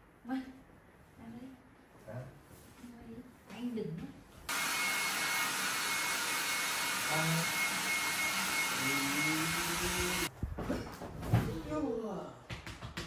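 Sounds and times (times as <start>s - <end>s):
hair dryer blowing: 4.5s - 10.3s.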